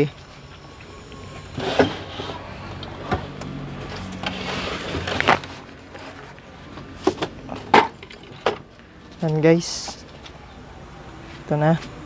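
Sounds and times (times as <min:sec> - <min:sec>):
scraping rustle: 0:03.9 - 0:06.4.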